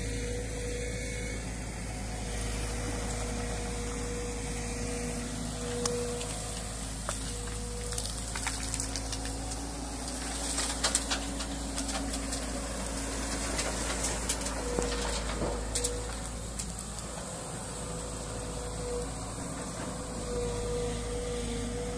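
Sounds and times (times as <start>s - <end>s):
excavator diesel engine running: 0.0s - 21.9s
stones clattering into steel truck body: 7.1s - 16.8s.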